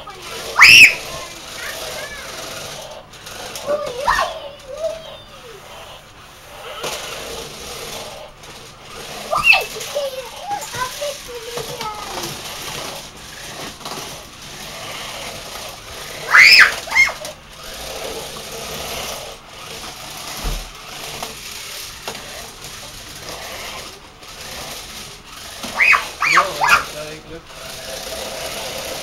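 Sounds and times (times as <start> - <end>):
toy car motors whirring: 0.0 - 29.0
child squealing: 0.4 - 2.3, 3.7 - 5.6, 9.3 - 11.0, 16.2 - 17.4, 25.7 - 27.0.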